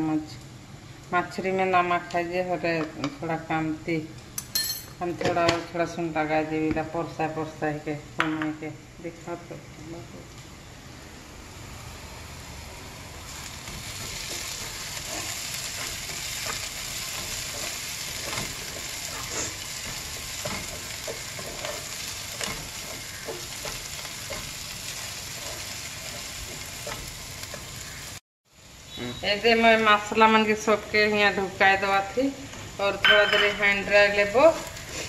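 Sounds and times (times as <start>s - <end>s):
onions sizzling in hot oil: 10.4s - 35.0s.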